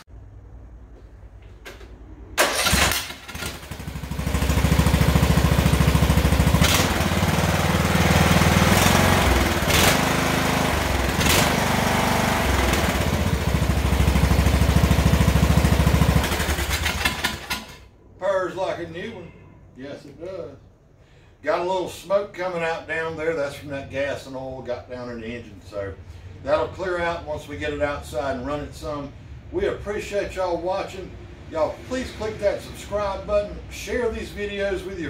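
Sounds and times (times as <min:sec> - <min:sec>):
mower engine starting and running: 0:02.4 - 0:17.9.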